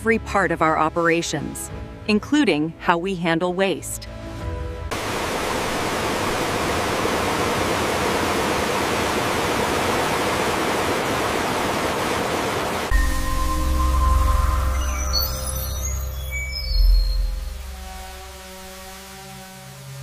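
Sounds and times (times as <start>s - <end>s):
music with deep bass: 12.9s - 20.0s.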